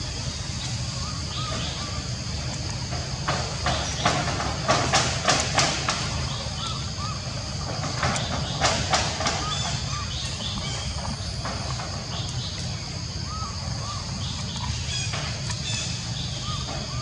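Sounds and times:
steady low hum: 0:00.0 - 0:17.0
knocks and rattles on metal roof: 0:02.8 - 0:12.3.

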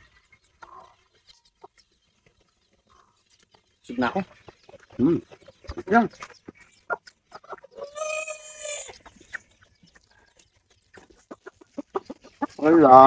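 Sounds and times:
chicken calling: 0:04.0 - 0:10.3.

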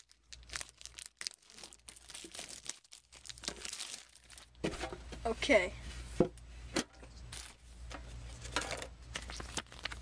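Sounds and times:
shrink-wrap crinkling and tearing: 0:00.0 - 0:04.6, 0:07.3 - 0:07.6, 0:08.3 - 0:10.0.

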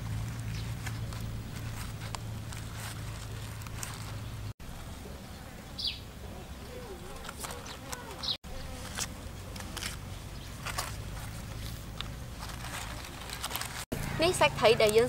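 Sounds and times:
fly buzzing: 0:07.6 - 0:10.1.

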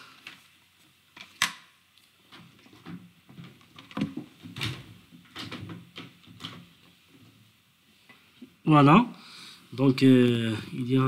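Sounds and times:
objects knocking and rustling on desk: 0:02.3 - 0:07.4.

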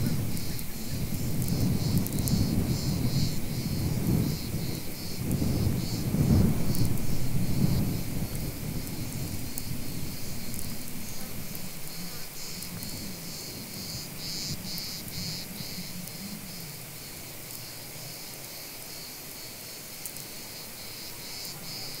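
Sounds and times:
low rumble: 0:00.0 - 0:14.1
cicadas buzzing: 0:00.0 - 0:22.0.

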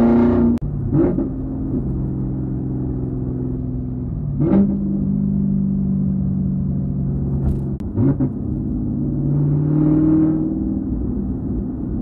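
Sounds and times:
car engine revving while driving: 0:00.0 - 0:12.0.

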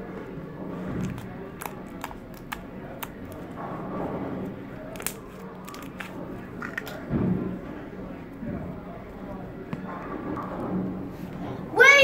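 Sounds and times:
steady background hum: 0:00.0 - 0:12.0
sticky slime clicks and pops: 0:04.9 - 0:06.0.

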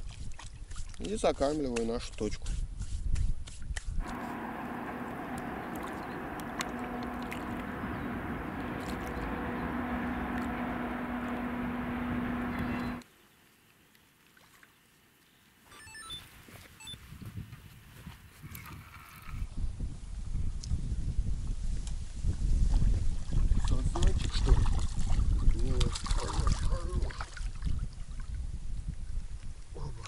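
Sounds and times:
motor drone with low hum: 0:04.0 - 0:13.0.

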